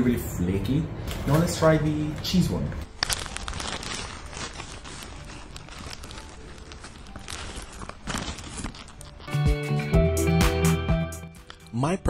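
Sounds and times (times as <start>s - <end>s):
flaky pastry crackling: 2.8s - 9.4s
paper bag crinkling: 2.8s - 9.5s.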